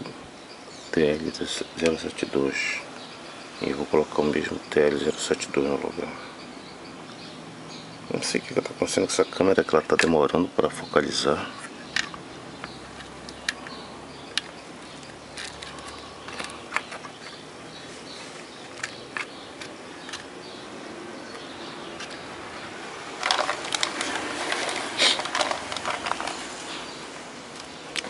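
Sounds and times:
faint steady hiss: 0:00.0 - 0:28.0
rustling and crackling: 0:11.4 - 0:20.6, 0:21.3 - 0:28.0.

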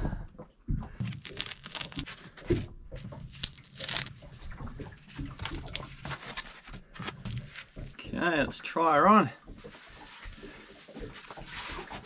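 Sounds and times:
foam tearing and rustling: 0:01.0 - 0:04.1, 0:05.3 - 0:07.7.

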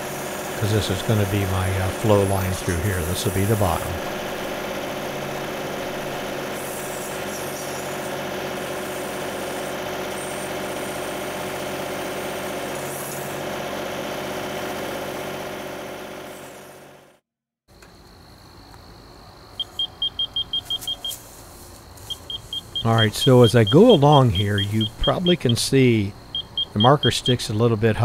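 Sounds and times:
backhoe scraping soil: 0:00.0 - 0:13.8
tractor diesel engine running: 0:00.0 - 0:17.2, 0:19.8 - 0:28.0.

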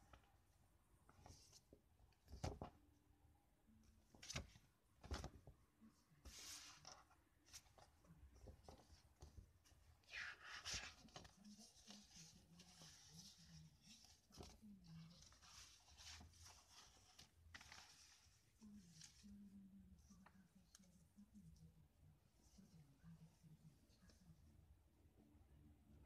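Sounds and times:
paper pamphlets rustling: 0:06.2 - 0:20.9.

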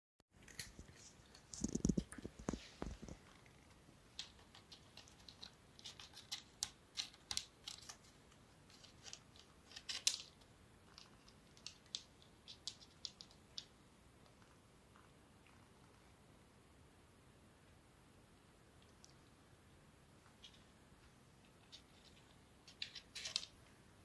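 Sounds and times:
cats crunching dry kibble: 0:00.4 - 0:13.7.

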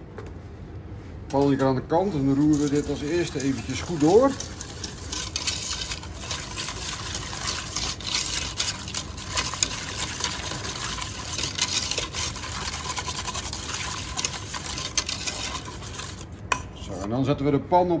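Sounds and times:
whisk scraping in a metal pot: 0:02.0 - 0:17.2.

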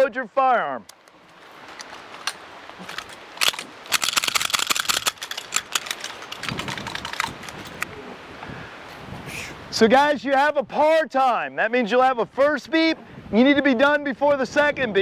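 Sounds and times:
metallic clicks of pistol handling: 0:00.8 - 0:07.9.

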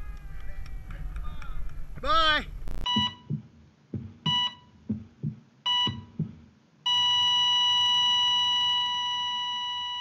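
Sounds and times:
long steady beep: 0:02.8 - 0:03.3, 0:04.3 - 0:04.7, 0:05.7 - 0:06.1, 0:06.9 - 0:10.0.

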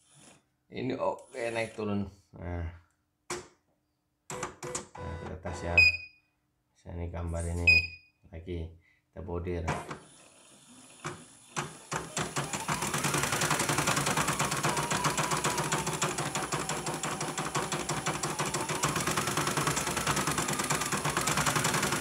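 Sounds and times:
embroidery machine stitching: 0:01.2 - 0:01.9, 0:09.8 - 0:22.0.

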